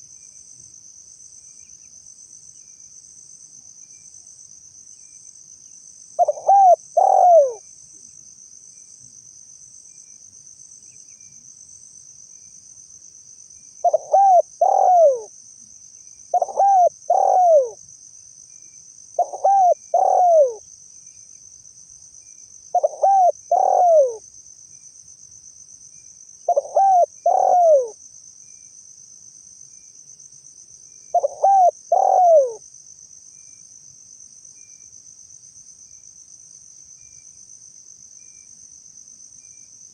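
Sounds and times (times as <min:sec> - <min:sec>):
insects droning: 0:00.0 - 0:39.9
dove cooing: 0:06.2 - 0:07.6, 0:13.8 - 0:15.3, 0:16.3 - 0:17.8, 0:19.2 - 0:20.6, 0:22.7 - 0:24.2, 0:26.5 - 0:28.0, 0:31.1 - 0:32.6.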